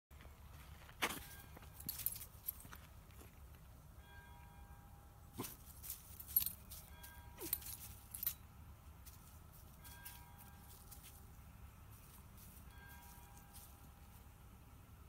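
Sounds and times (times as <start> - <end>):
scuffling on frosty grass: 9.0 - 14.4.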